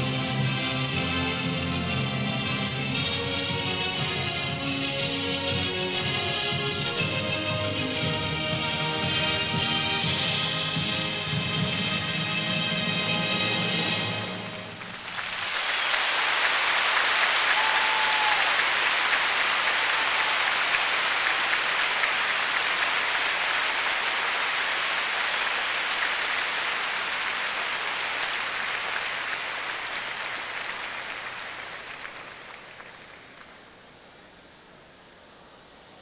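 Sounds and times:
crowd applauding: 0:14.5 - 0:34.0.

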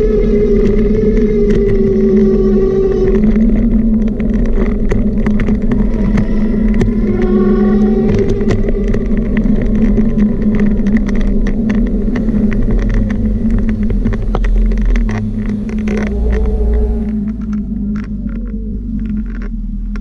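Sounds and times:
small vehicle motor hum: 0:00.0 - 0:20.0
wheels clicking and rattling: 0:00.0 - 0:20.0.

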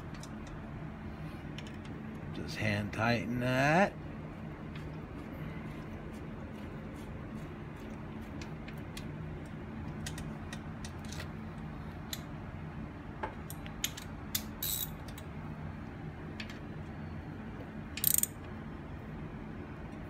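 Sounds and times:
ratchet clicking: 0:13.8 - 0:15.2, 0:18.0 - 0:18.4
socket wrench clicks: 0:18.0 - 0:18.4.

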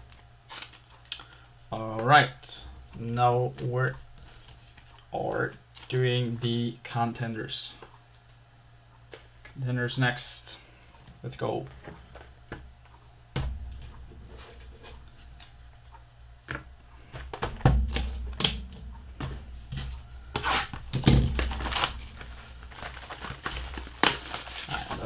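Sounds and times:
plastic wrap crinkling and tearing: 0:00.5 - 0:01.4, 0:20.4 - 0:25.0.

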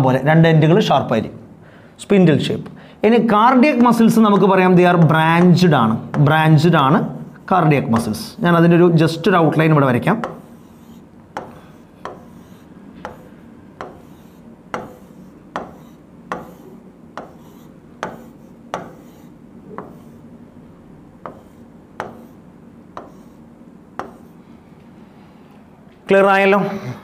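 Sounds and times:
low steady hum: 0:00.0 - 0:27.0
pen tapping on board: 0:10.2 - 0:20.2, 0:21.2 - 0:23.4, 0:24.0 - 0:24.4
pen rubbing on board: 0:10.2 - 0:20.3, 0:21.2 - 0:22.4, 0:23.0 - 0:24.4.

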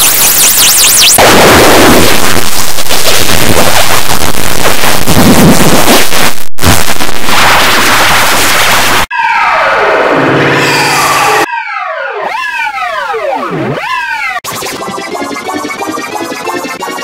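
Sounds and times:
harsh distorted noise: 0:00.0 - 0:11.5.

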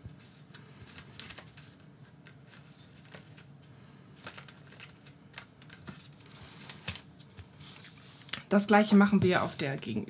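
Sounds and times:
cardstock clicks and rustles: 0:00.1 - 0:03.5, 0:04.2 - 0:08.5.

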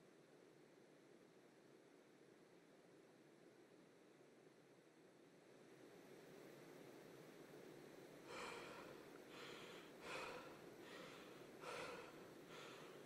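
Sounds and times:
low steady hiss: 0:00.0 - 0:13.0
man breathing hard: 0:08.2 - 0:13.0.

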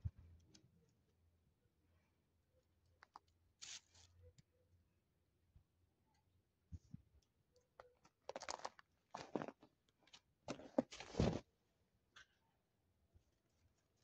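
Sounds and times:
crunching: 0:07.9 - 0:11.4.

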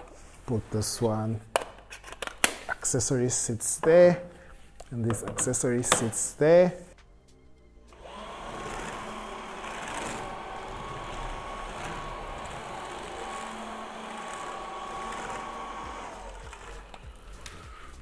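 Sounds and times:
stick vacuum running: 0:07.9 - 0:18.0.

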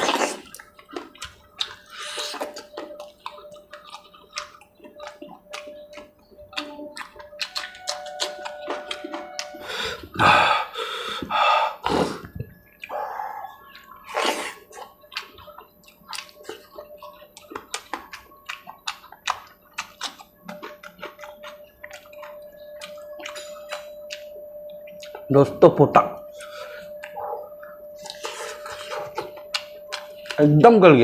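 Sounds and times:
wet slurping: 0:00.0 - 0:24.3
wet chewing and mouth smacking: 0:00.0 - 0:30.8.

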